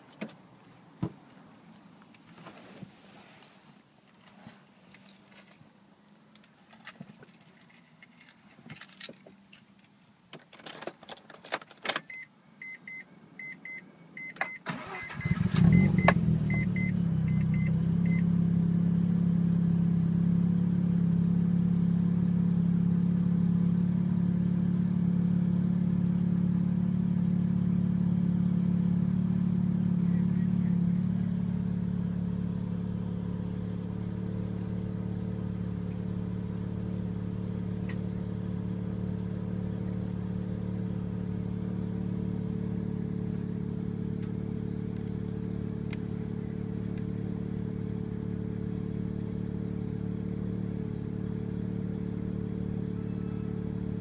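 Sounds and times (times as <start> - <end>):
keys jangling: 4.2 - 5.6, 6.4 - 11.8
warning chime beeping: 12.1 - 18.2
rotary engine starting and idling: 14.4 - 19.0.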